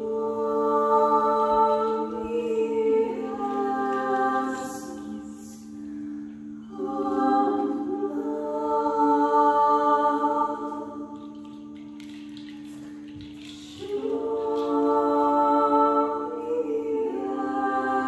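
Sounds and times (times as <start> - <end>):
voices singing long notes: 0.0 - 11.7, 13.4 - 18.0.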